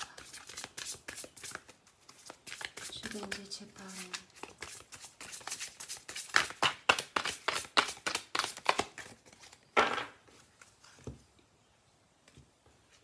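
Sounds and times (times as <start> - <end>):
cards being shuffled: 0.0 - 9.6.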